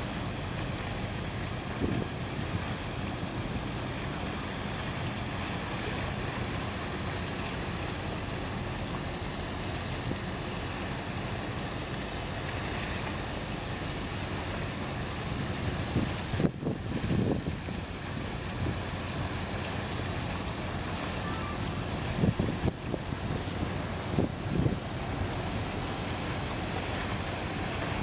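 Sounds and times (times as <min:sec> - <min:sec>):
waves washing against concrete: 0:00.0 - 0:28.0
wind on microphone: 0:01.6 - 0:02.7, 0:15.4 - 0:18.9, 0:21.8 - 0:25.8.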